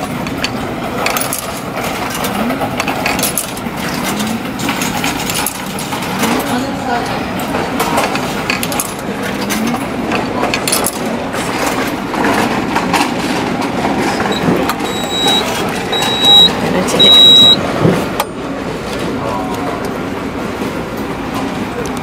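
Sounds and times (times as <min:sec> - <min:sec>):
street chatter: 0:00.0 - 0:22.0
vending machine beeping: 0:01.2 - 0:17.7.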